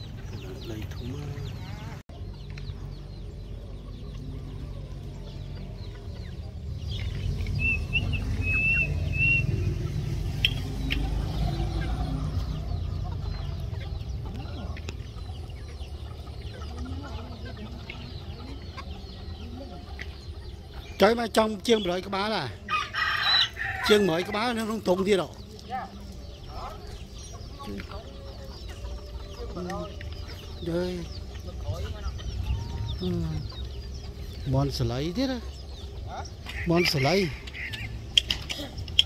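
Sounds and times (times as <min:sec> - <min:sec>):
chickens clucking: 0:00.0 - 0:39.0
high chirps: 0:07.0 - 0:13.1.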